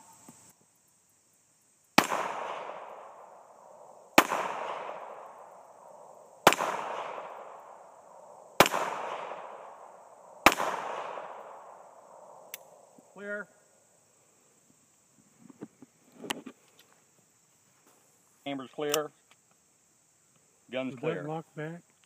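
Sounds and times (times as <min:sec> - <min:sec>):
pistol shots with echo: 0:02.0 - 0:12.7.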